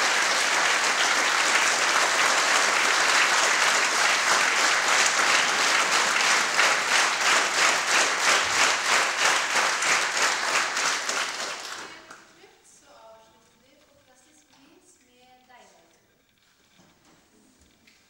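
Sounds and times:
audience applause: 0.0 - 12.1
rhythmic clapping in unison: 0.0 - 12.2.

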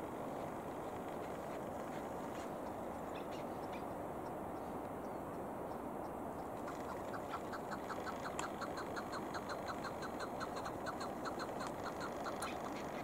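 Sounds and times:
background hiss: 0.0 - 13.0
partridge chuck calls: 2.6 - 5.8, 6.4 - 13.0.

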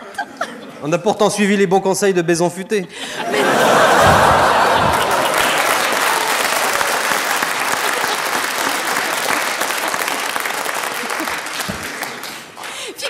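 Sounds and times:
studio audience applauding: 3.4 - 13.0.

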